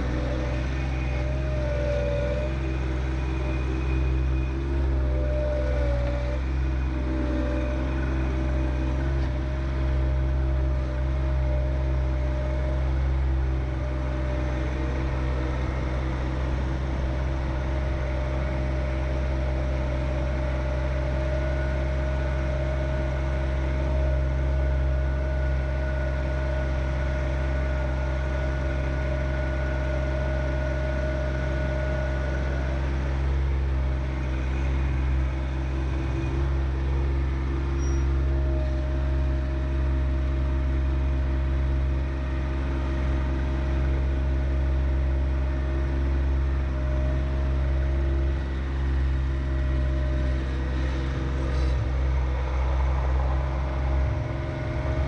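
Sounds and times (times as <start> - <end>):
tractor diesel engine running: 0.0 - 55.0
thin steady whine: 40.1 - 55.0.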